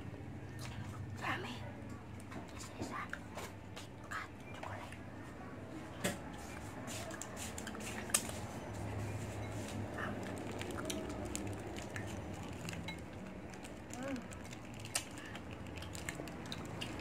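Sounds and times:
chocolate being chewed: 9.3s - 17.0s
plastic wrapper crinkling: 10.2s - 17.0s.

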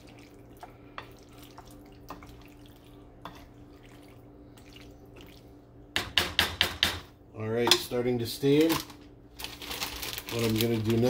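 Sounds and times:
spoon stirring thick sauce: 0.0s - 5.4s.

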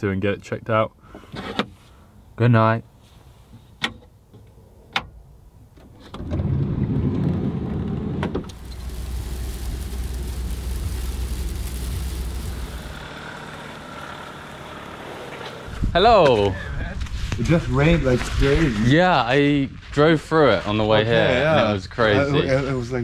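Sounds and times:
van road rumble: 5.6s - 16.5s
rain and tyre spray hiss: 6.6s - 15.9s.

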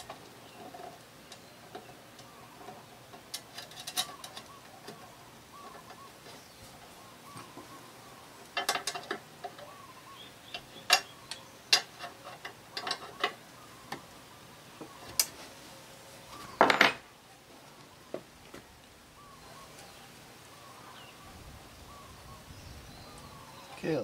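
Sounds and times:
metal clicks taps and knocks: 8.6s - 9.7s.

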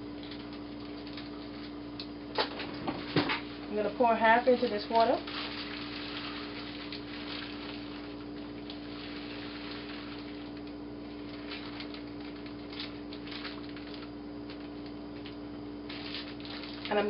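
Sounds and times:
steady low hum: 0.0s - 17.0s
plastic bag crinkling: 0.2s - 2.0s, 4.4s - 17.0s
dried peas pouring into water: 4.8s - 10.6s, 15.9s - 17.0s.

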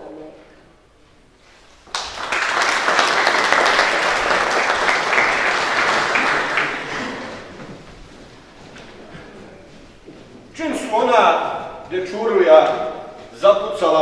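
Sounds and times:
audience applauding: 1.8s - 7.8s.

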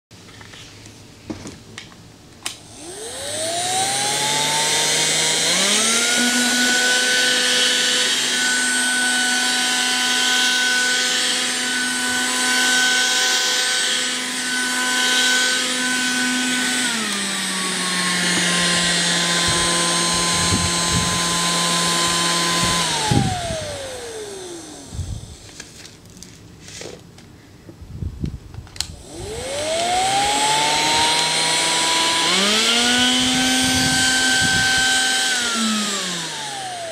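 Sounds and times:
handheld vacuum cleaner motor whine: 2.4s - 27.0s, 28.7s - 36.9s.

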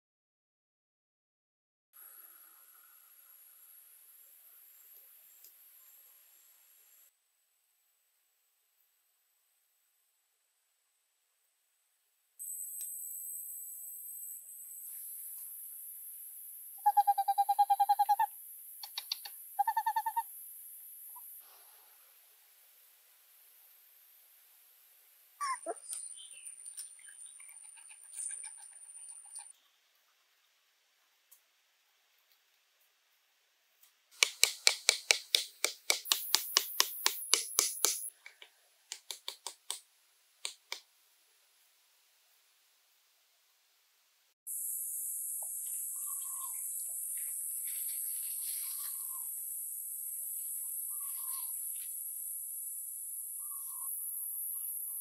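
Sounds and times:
bird hooting call: 16.8s - 18.3s, 19.6s - 20.2s, 25.4s - 25.9s, 50.9s - 51.5s
hammer tapping stakes: 34.2s - 39.8s.

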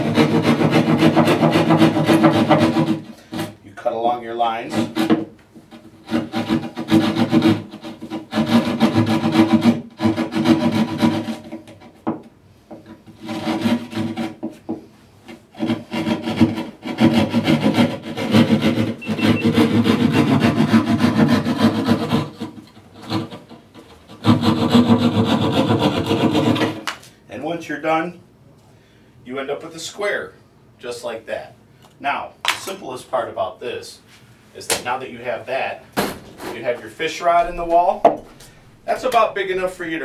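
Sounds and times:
reciprocating saw cutting drywall: 0.0s - 3.6s, 4.6s - 11.9s, 13.1s - 14.6s, 15.5s - 26.9s.

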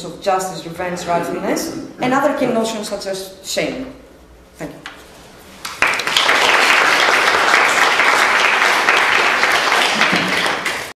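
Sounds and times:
audience applauding: 5.6s - 10.9s.

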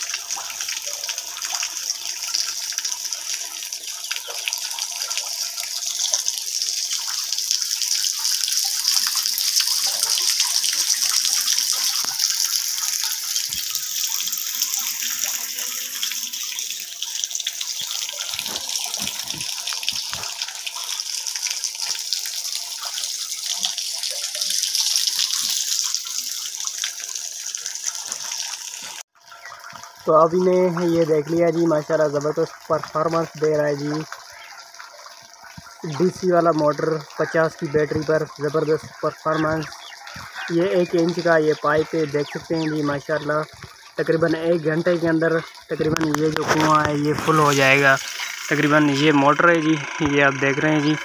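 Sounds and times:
water jet gushing from pipe: 0.0s - 51.0s
water splashing: 0.0s - 51.0s.

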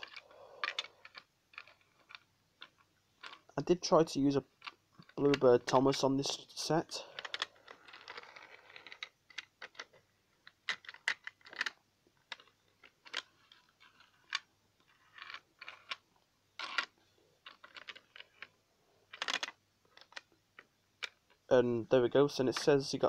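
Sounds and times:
plastic toy pieces clicking: 0.0s - 3.5s, 7.2s - 18.5s, 19.1s - 21.5s.

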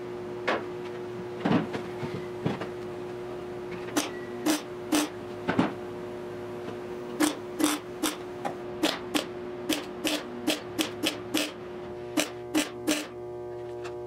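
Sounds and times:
welder steady hum: 0.0s - 14.0s
welder tack weld bursts: 4.0s - 5.1s, 7.2s - 8.2s, 8.8s - 11.6s, 12.2s - 13.2s.

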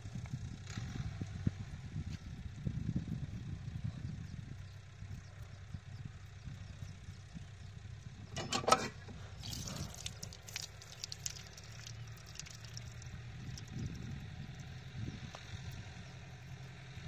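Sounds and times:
low steady hum: 0.0s - 17.0s
metal pump clank: 8.3s - 9.6s
water pouring and splashing: 9.4s - 14.0s.

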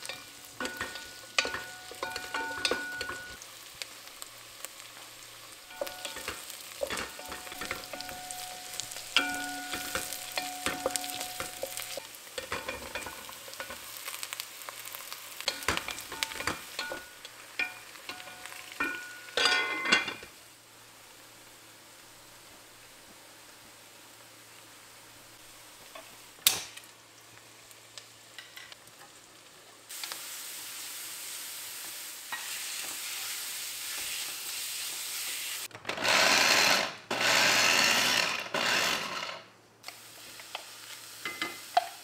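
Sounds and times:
wooden spoon knocking and scraping pot: 0.0s - 3.4s, 5.7s - 13.8s
onions frying in oil: 0.0s - 35.7s, 39.8s - 42.0s.

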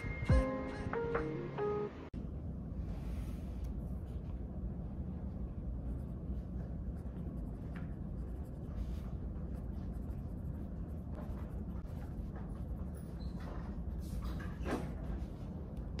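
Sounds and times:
low steady background hum: 2.0s - 16.0s
pen scratching on paper: 6.8s - 13.2s.

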